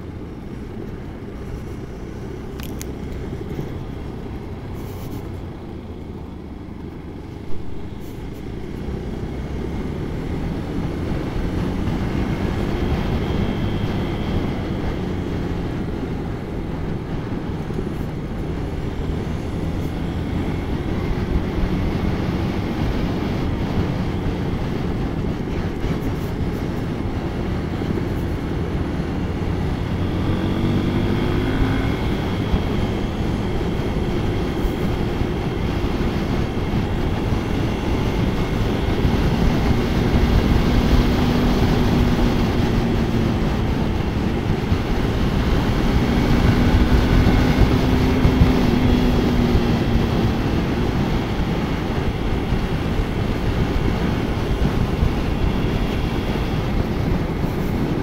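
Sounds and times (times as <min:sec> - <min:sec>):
motorcycle engine running: 0:00.0 - 0:58.0
wind and road noise: 0:00.0 - 0:58.0.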